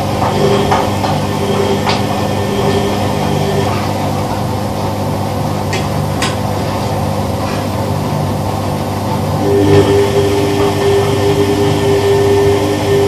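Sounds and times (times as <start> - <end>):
washing machine running: 0.0 - 13.0.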